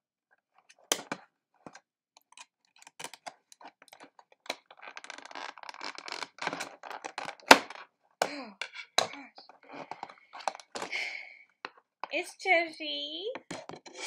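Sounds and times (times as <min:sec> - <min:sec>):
plastic wrapping crinkling: 0:02.7 - 0:07.8.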